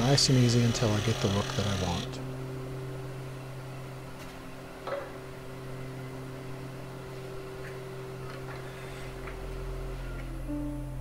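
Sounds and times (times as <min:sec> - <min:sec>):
wood lathe motor hum: 0:00.0 - 0:02.2.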